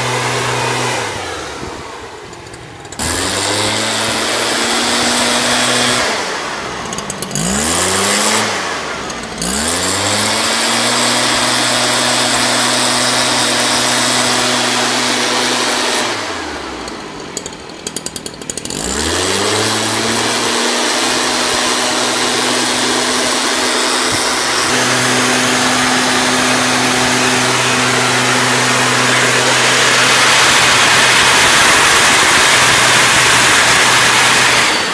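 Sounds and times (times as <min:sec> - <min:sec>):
two-stroke engine revving: 0:00.0 - 0:34.9
rush of air and mist: 0:19.4 - 0:34.9.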